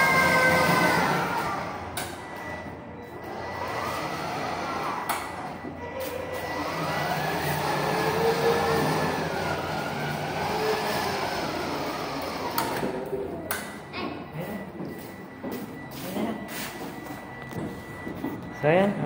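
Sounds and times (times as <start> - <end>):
toy car electric motor whine: 0.0 - 1.8, 6.2 - 13.0.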